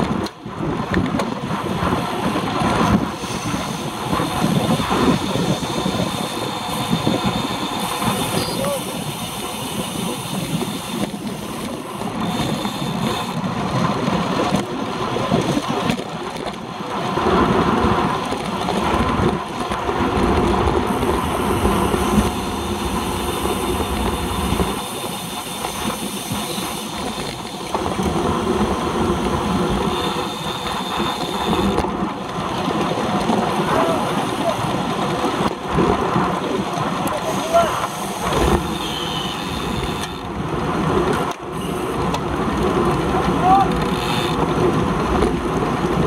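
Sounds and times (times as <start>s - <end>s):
tyre and road noise: 0.0s - 46.0s
wind rushing over microphone: 0.0s - 46.0s.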